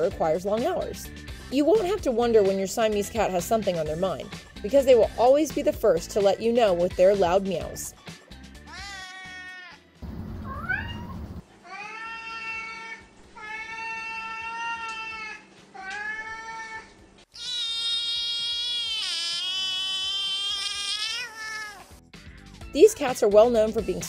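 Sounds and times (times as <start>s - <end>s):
cats meowing: 8.7s - 22.0s
kitten wavering call: 10.4s - 12.5s, 17.4s - 21.9s.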